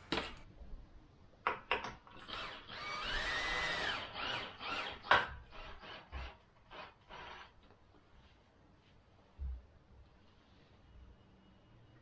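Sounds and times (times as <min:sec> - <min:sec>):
cordless drill driving screw: 0:02.2 - 0:07.5.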